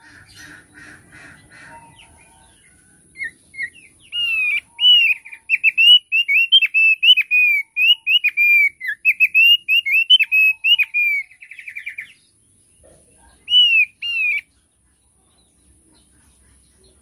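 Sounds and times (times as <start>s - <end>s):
bird whistling song: 1.7s - 12.2s, 13.4s - 14.5s.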